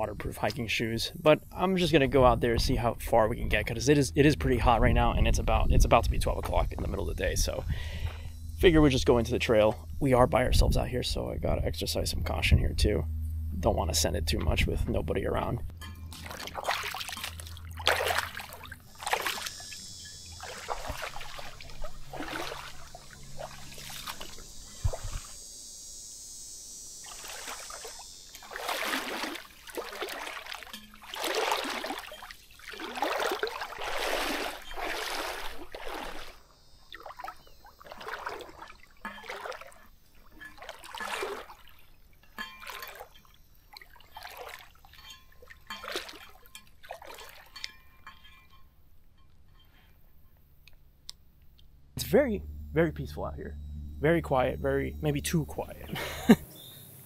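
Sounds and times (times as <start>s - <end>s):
footsteps wading through water: 16.1s - 25.3s, 27.0s - 48.4s.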